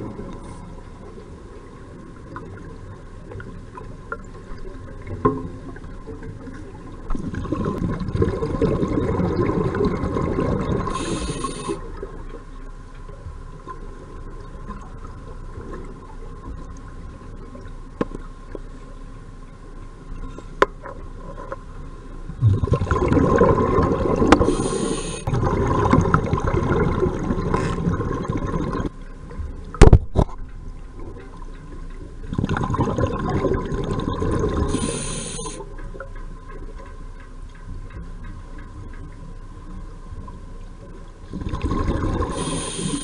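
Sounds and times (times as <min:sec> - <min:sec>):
underwater bubbling regulator: 0:00.0 - 0:12.3, 0:22.2 - 0:29.0, 0:29.7 - 0:40.1, 0:40.9 - 0:43.0.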